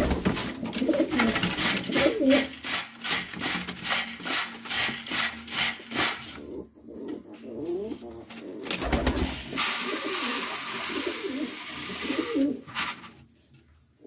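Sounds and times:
pigeons cooing: 0.0s - 2.5s, 6.4s - 12.6s.

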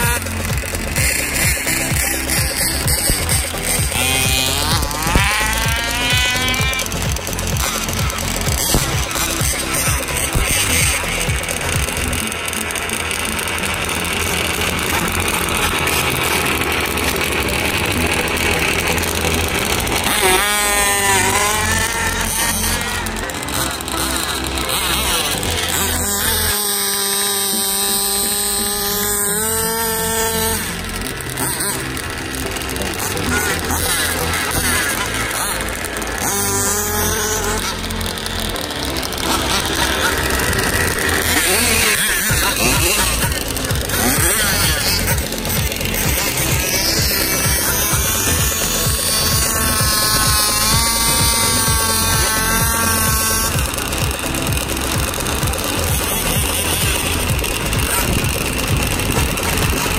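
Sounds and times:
loud steady din: 0.0s - 59.9s
motor whine: 0.0s - 59.9s.

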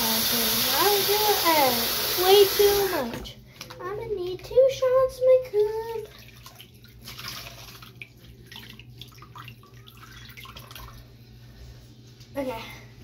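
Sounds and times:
water splashing in a sink: 0.0s - 3.9s, 5.5s - 11.2s.

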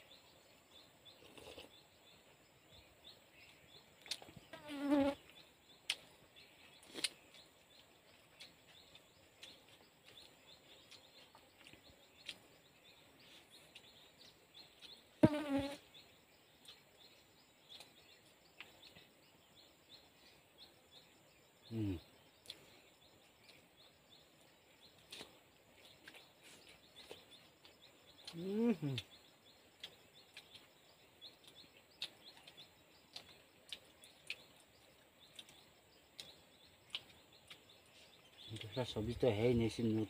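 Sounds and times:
faint insects: 0.0s - 40.0s
fly buzzing past: 4.5s - 5.2s, 15.2s - 15.8s.

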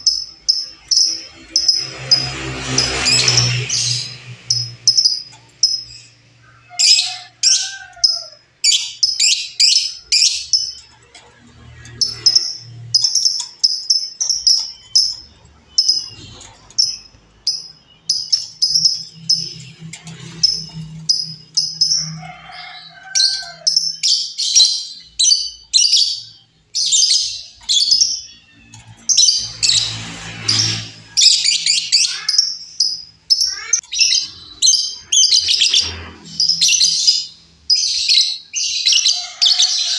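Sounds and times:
lovebird chirping and chattering: 0.0s - 39.9s.

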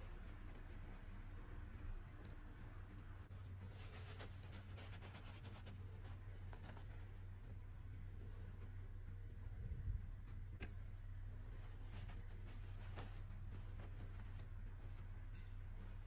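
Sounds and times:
steady low hum: 0.0s - 16.0s
fabric rustling: 3.1s - 7.7s, 10.3s - 16.0s.

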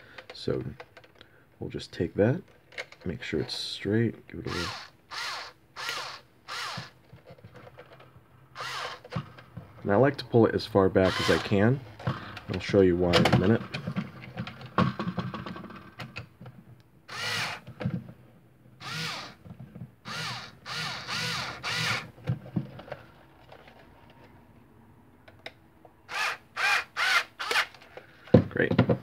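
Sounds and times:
electric screwdriver whine: 4.5s - 7.0s, 8.6s - 9.1s, 11.0s - 11.5s, 17.1s - 17.6s, 18.8s - 19.4s, 20.1s - 22.1s, 26.1s - 27.7s.

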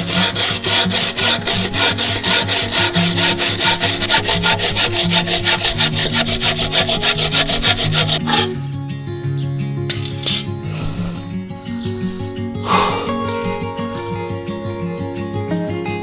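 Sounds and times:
saw cutting wood: 0.0s - 8.6s, 10.8s - 14.2s.

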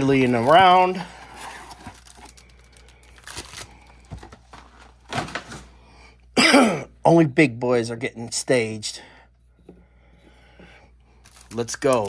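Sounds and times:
card pack wrappers crinkling: 0.0s - 5.6s, 11.2s - 12.0s.

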